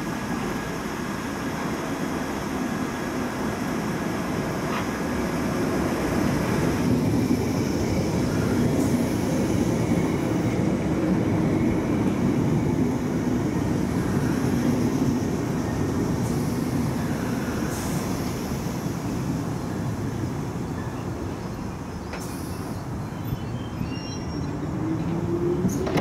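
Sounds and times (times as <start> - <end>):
train wheels rumbling on rail: 0.0 - 26.0.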